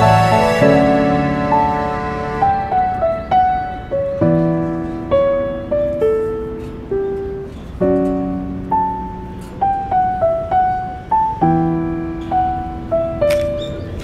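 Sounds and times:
slow piano music: 0:00.0 - 0:14.0.

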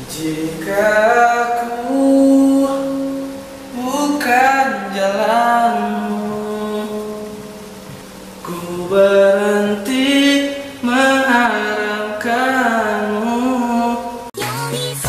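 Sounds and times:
man singing a slow ballad: 0:00.0 - 0:07.7, 0:08.4 - 0:14.3
music with bass line: 0:14.4 - 0:15.0.

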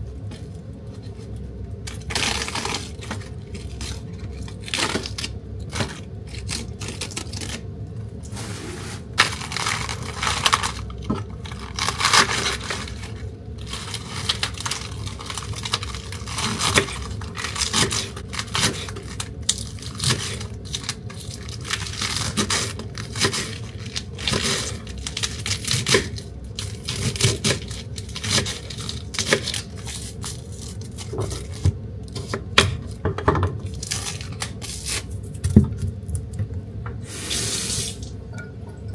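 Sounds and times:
lettuce leaves tearing: 0:01.8 - 0:07.7, 0:09.2 - 0:32.3, 0:33.7 - 0:35.4.

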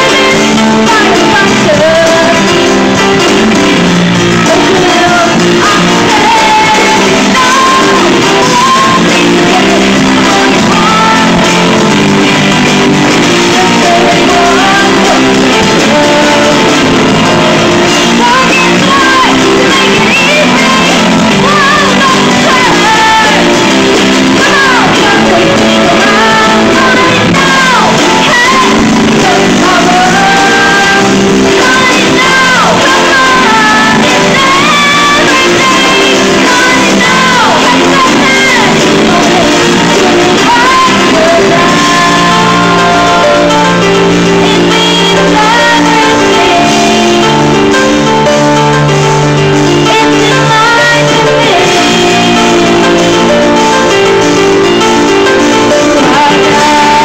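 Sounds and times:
women singing: 0:00.0 - 0:54.6, 0:55.2 - 0:57.0
live rock band playing: 0:00.0 - 0:57.0.

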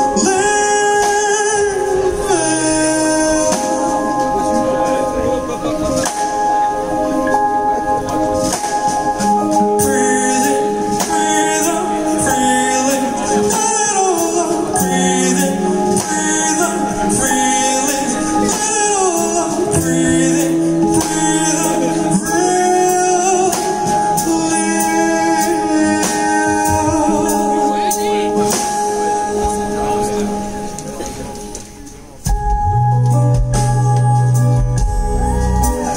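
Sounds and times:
male singer singing: 0:00.0 - 0:06.2, 0:09.6 - 0:31.3
keyboard chords: 0:00.0 - 0:35.9.

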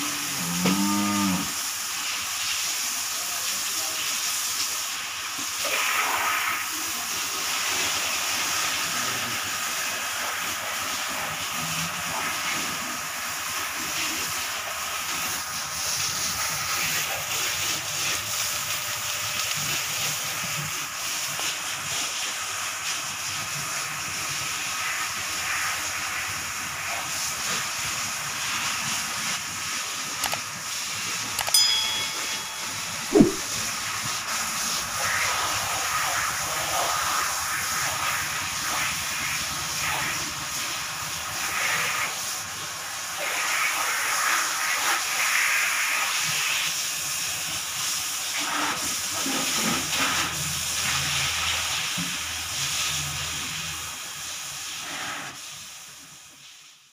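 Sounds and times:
brief louder sound: 0:33.1 - 0:33.5.

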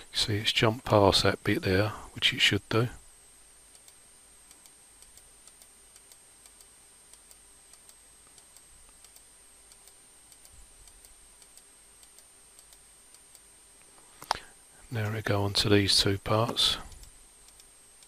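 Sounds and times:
low steady hiss: 0:00.0 - 0:18.0
computer mouse clicks: 0:03.7 - 0:13.4, 0:16.9 - 0:17.7.

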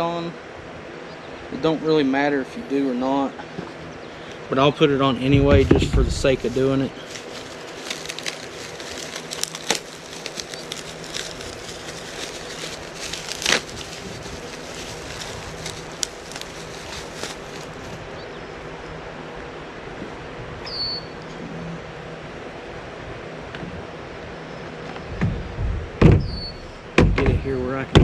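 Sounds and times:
plastic packaging crinkling: 0:06.0 - 0:18.0.

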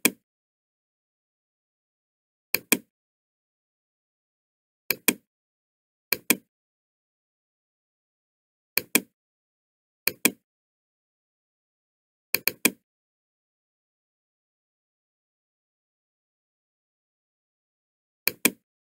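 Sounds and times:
computer mouse clicks: 0:02.6 - 0:02.9, 0:04.9 - 0:05.2, 0:06.1 - 0:06.5, 0:08.8 - 0:09.1, 0:10.1 - 0:10.4, 0:12.4 - 0:12.8, 0:18.3 - 0:18.6.

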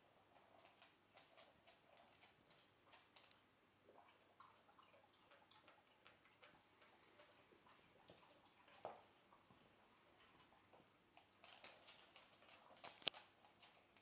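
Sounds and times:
faint small clicks and ticks: 0:00.3 - 0:03.5, 0:10.2 - 0:14.0.

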